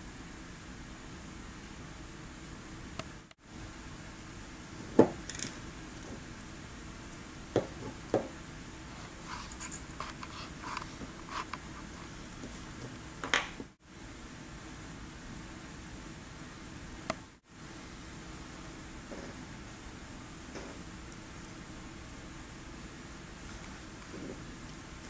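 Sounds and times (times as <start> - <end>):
metal parts clicking: 5.2 - 5.6
light scratching: 8.9 - 13.0.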